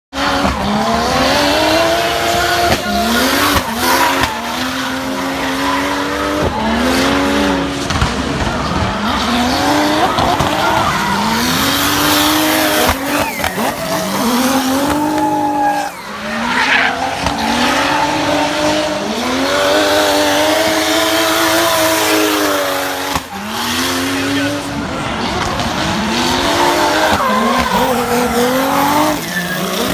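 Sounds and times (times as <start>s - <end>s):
turbocharged engine revving: 0.1s - 29.9s
tyre squeal: 10.2s - 18.1s, 26.3s - 29.9s.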